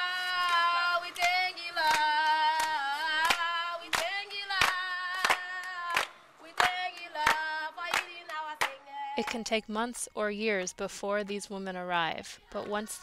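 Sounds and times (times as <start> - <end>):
women singing unaccompanied: 0.0 - 13.0
hands clapping in time: 0.1 - 9.5.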